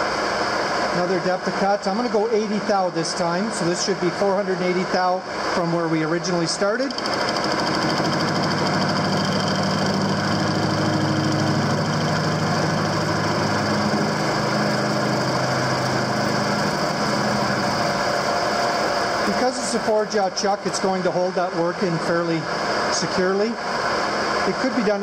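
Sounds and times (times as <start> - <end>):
metal lathe cutting with pulsing: 6.8 - 20.0.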